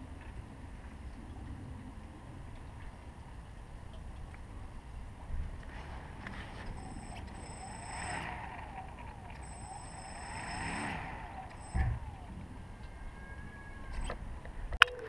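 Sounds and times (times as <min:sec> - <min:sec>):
drone motors whining: 0:05.7 - 0:14.7
loud thump: 0:11.7 - 0:12.1.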